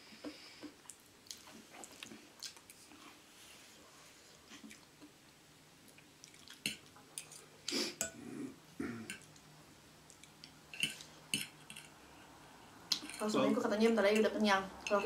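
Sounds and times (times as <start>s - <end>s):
wet chewing and lip-smacking: 0.8s - 3.0s, 5.9s - 7.4s.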